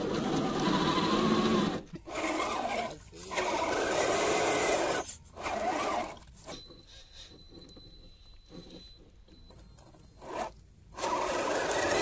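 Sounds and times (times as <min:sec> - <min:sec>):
electric motor whining: 0:00.0 - 0:06.2, 0:10.2 - 0:12.0.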